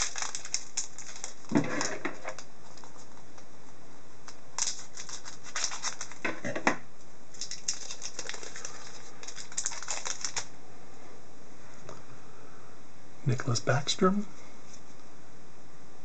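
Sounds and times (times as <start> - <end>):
card pack wrapper crinkling: 0.0 - 3.2, 4.6 - 6.3, 7.3 - 10.5
cards being handled: 4.6 - 6.4.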